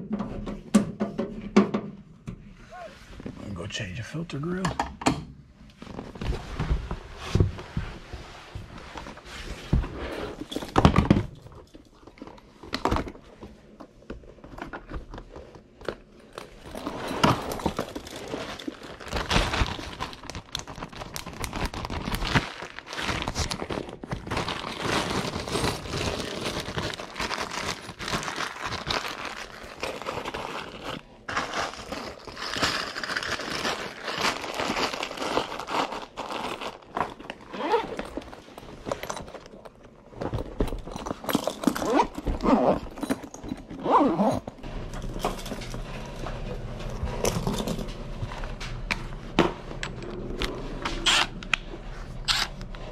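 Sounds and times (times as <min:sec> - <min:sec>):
rustling and crinkling: 0:05.6 - 0:52.9
tool bag rummaged through: 0:08.6 - 0:48.6, 0:49.8 - 0:52.9
tools clattering: 0:37.9 - 0:48.0.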